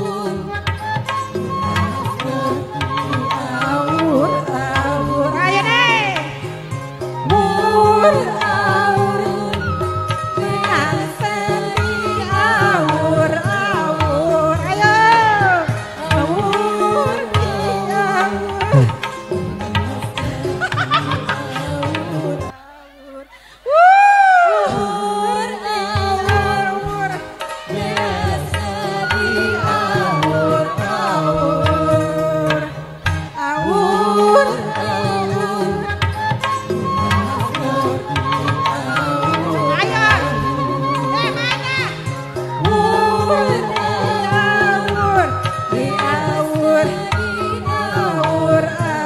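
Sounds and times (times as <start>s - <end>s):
live band music: 0.0s - 22.5s, 25.1s - 49.0s
hand-drum beat: 0.0s - 22.6s, 23.7s - 49.0s
wavering sliding melody: 1.0s - 22.6s.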